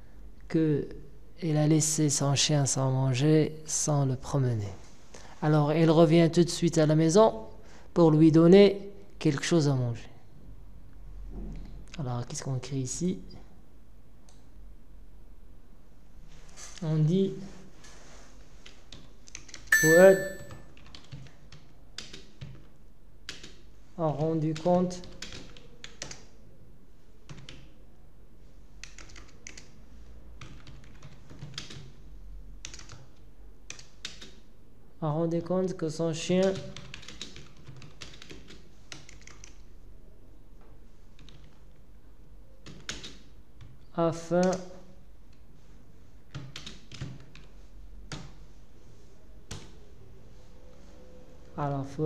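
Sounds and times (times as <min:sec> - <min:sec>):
keyboard typing: 0:18.6 - 0:22.6, 0:25.0 - 0:26.2, 0:28.8 - 0:29.7, 0:30.4 - 0:31.9, 0:32.6 - 0:33.1, 0:36.5 - 0:39.6, 0:42.6 - 0:43.7, 0:46.3 - 0:47.5.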